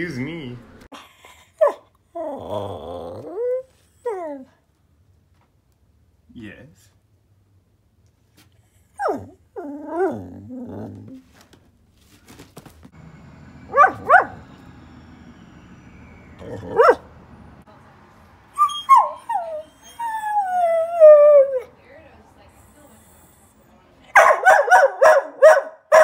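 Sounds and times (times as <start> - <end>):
dog whining: 1.6 - 4.5, 8.6 - 11.2, 13.4 - 17.2, 18.6 - 21.7
dog moaning: 2.1 - 4.5, 8.8 - 11.2, 13.2 - 17.4
dog barking: 13.4 - 14.8, 16.3 - 17.2, 24.1 - 26.0.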